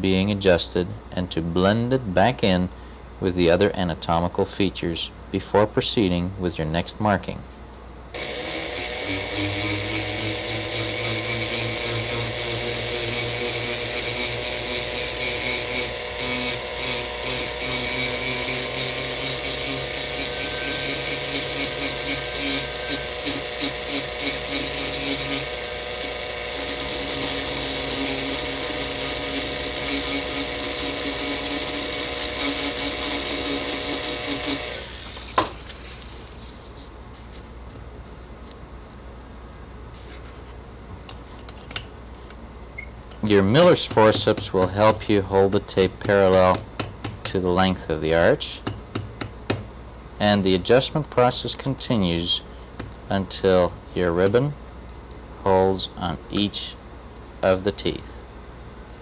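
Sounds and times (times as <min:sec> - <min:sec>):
dental handpiece motor whine: 0:08.1 - 0:35.7, 0:42.8 - 0:46.6
abrasive stone grinding metal: 0:19.6 - 0:23.8, 0:43.2 - 0:46.6.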